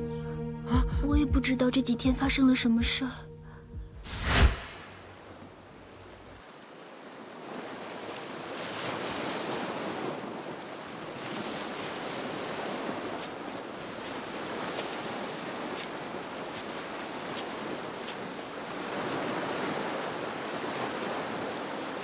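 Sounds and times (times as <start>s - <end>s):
steady rushing noise: 4.0s - 6.4s, 12.2s - 19.6s.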